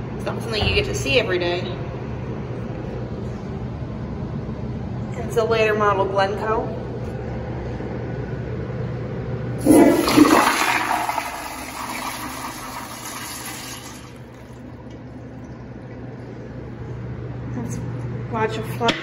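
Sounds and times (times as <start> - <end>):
toilet flushing: 9.6 - 15.0.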